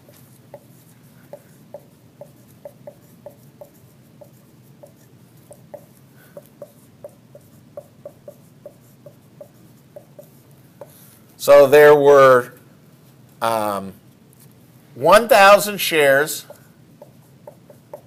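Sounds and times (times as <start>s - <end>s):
marker squeaking on a whiteboard: 0.0s - 11.1s, 16.4s - 18.0s.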